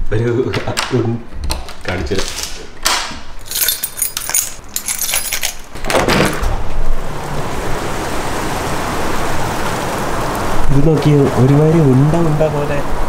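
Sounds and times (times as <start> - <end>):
door clicking and rattling open: 0.5 - 6.7.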